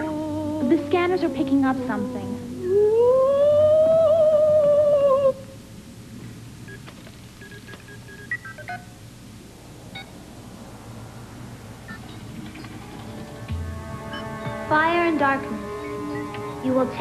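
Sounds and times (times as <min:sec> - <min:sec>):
short electronic beeps: 0:09.9 - 0:10.2.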